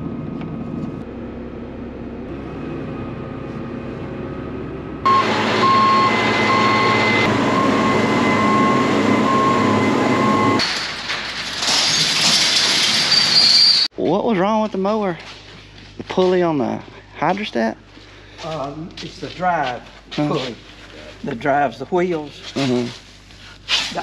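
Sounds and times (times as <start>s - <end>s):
high engine whine: 0.0s - 10.6s
combine engine running: 0.1s - 10.6s.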